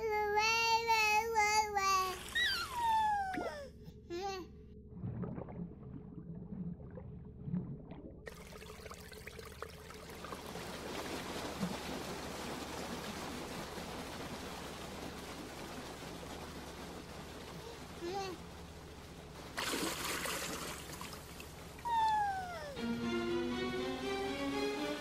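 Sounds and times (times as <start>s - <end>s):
running water filling a bathtub: 8.2s - 22.6s.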